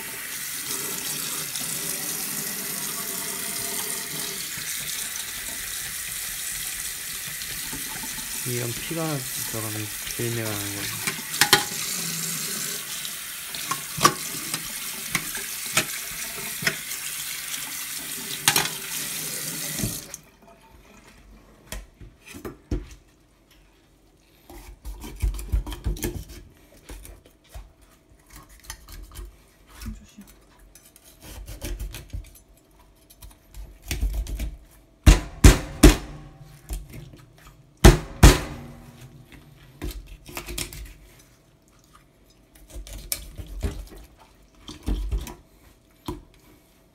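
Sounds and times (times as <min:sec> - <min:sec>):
tap water running into sink: 0:00.0 - 0:20.2.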